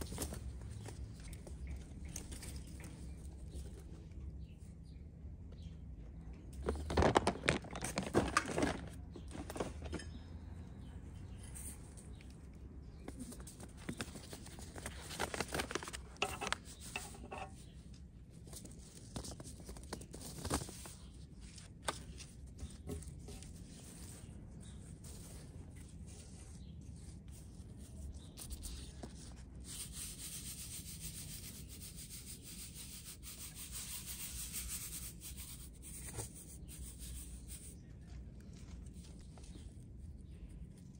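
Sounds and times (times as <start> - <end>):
paper seed packets crinkling: 6.6 - 10.0, 13.1 - 17.4, 18.2 - 29.9.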